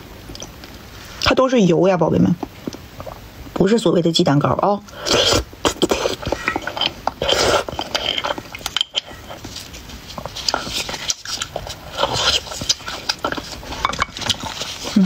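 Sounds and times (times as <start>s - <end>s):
slurping bone marrow: 4.9s - 15.0s
wet chewing and lip-smacking: 5.2s - 15.0s.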